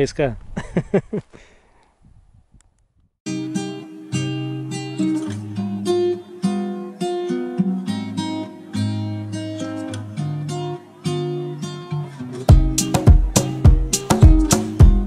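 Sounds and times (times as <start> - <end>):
acoustic guitar tune: 3.3 - 15.0.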